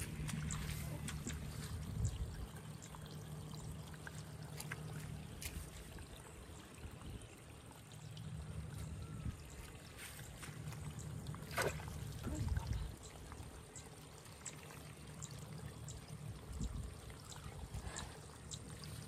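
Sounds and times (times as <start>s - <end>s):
low steady hum: 0.0s - 19.0s
water trickling: 0.0s - 19.0s.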